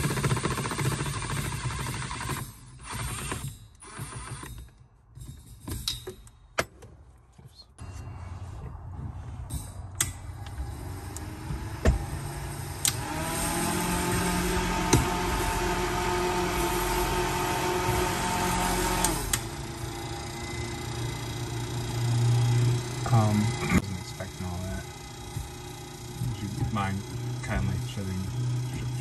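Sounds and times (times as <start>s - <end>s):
small motor whirring: 0.0s - 4.7s, 10.1s - 29.0s
low rumble: 7.8s - 12.9s.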